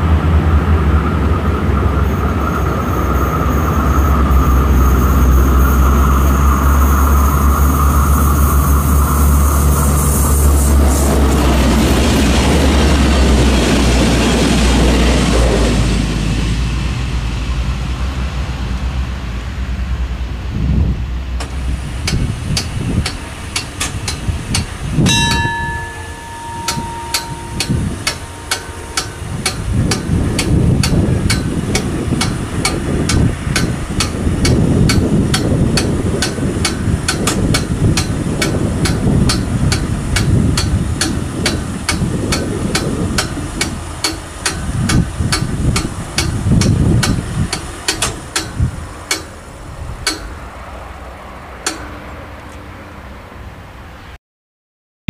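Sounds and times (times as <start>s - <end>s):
held high tone: 25.0s - 31.3s
level crossing bell striking: 25.0s - 31.9s.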